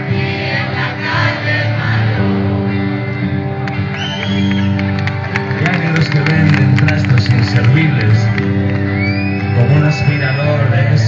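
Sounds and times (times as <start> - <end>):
electric guitar: 0.0 - 11.0
live rock band playing: 0.0 - 11.0
high whistle-like tone: 3.9 - 4.8, 8.9 - 10.7.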